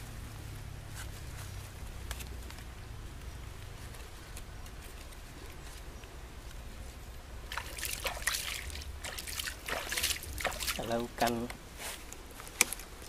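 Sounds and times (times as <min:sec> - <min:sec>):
low steady rumble: 0:00.0 - 0:11.6
wet leaves rustling: 0:00.0 - 0:13.0.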